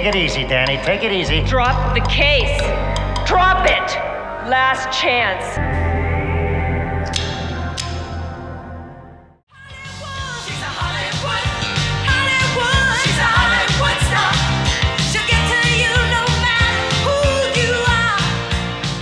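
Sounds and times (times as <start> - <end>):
theme music with drum beat: 9.7 - 19.0.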